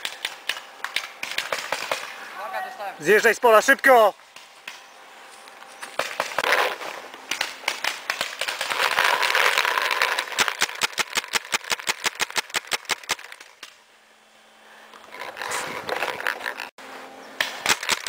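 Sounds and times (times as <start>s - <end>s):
paintball marker firing rapid shots: 0.0s - 2.1s, 6.0s - 13.7s, 17.4s - 18.0s.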